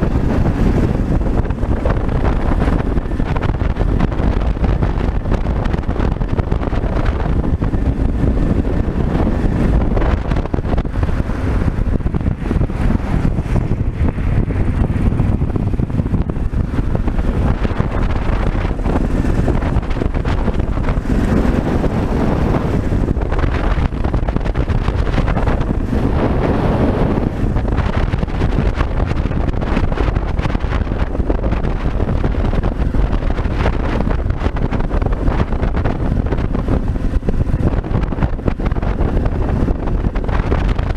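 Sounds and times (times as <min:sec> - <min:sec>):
motorcycle engine running: 0:00.0 - 0:40.9
wind rushing over microphone: 0:00.0 - 0:40.9.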